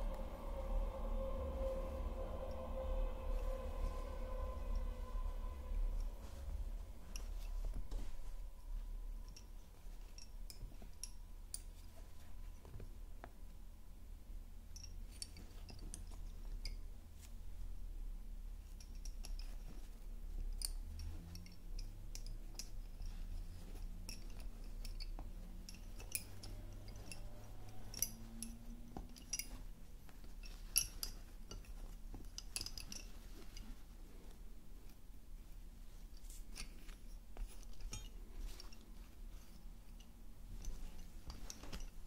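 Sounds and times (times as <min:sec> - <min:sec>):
low steady hum: 0:00.0 - 0:42.0
lace bobbins clicking: 0:18.6 - 0:42.0.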